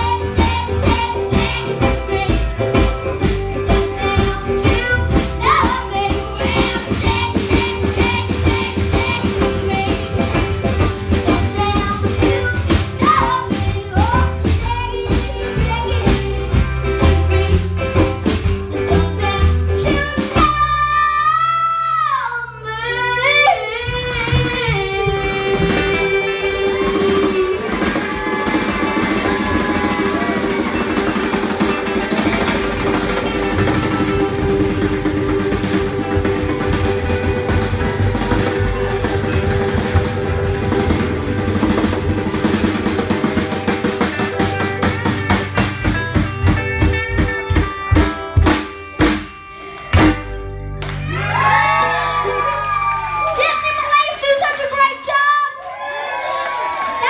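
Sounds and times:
girls singing: 0.0s - 2.5s, 3.7s - 10.3s
acoustic band playing: 0.0s - 57.0s.

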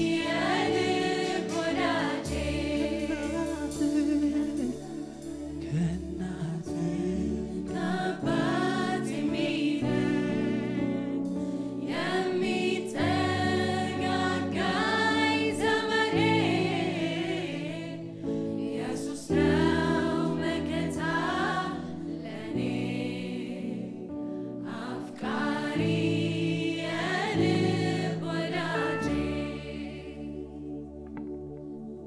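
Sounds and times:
band sustained low notes: 0.0s - 8.7s
mixed choir singing in harmony: 0.0s - 32.0s.

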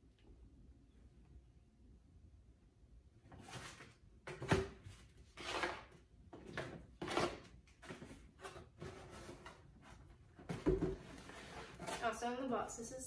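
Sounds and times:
cardboard box scraping and rubbing: 11.0s - 12.2s.

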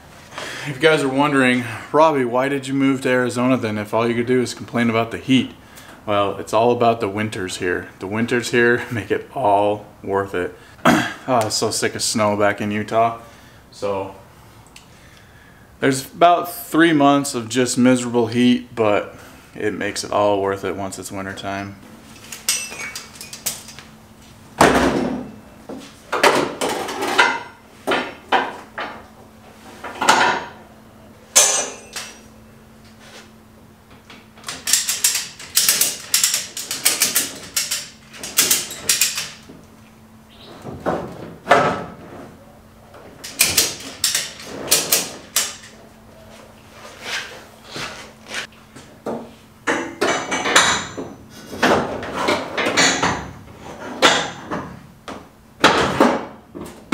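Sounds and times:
faint steady hum: 0.0s - 56.9s
ratchet straps clanking and rattling: 22.2s - 23.8s, 34.4s - 39.5s, 43.2s - 45.8s.

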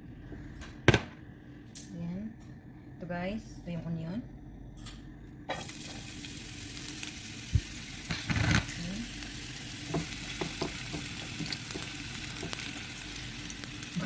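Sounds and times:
onion sizzling in oil: 5.5s - 14.0s.

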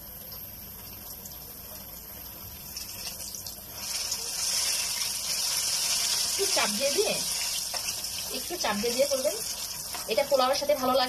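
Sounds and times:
frying in hot oil sizzling: 0.0s - 11.0s
spoon clicking on frying pieces: 7.3s - 8.4s, 9.1s - 10.3s.

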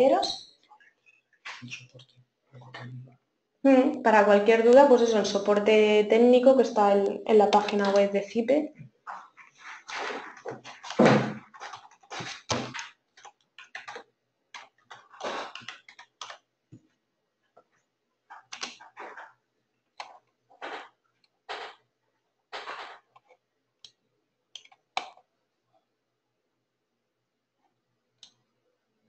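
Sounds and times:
typing on a keyboard: 7.4s - 8.1s, 10.7s - 16.5s, 18.3s - 19.4s, 20.0s - 21.8s, 22.6s - 25.2s.

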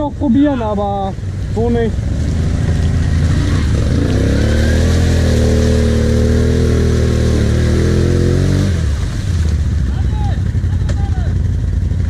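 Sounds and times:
quad engine revving: 2.0s - 9.0s.

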